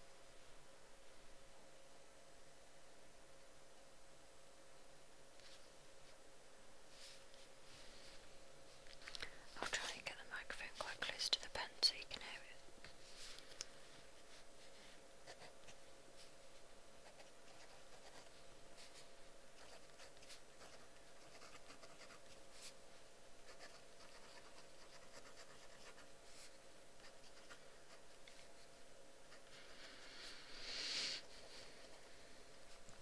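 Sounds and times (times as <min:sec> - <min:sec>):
low hiss and hum: 0:00.0 - 0:33.0
pen scratching on paper: 0:17.0 - 0:19.0, 0:19.6 - 0:22.7, 0:23.5 - 0:28.0.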